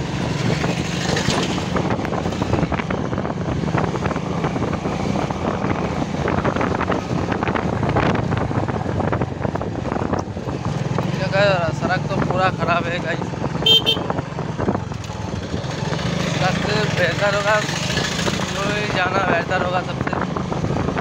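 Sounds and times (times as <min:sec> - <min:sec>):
motorcycle engine running: 0:00.0 - 0:21.0
wind buffeting microphone: 0:00.0 - 0:21.0.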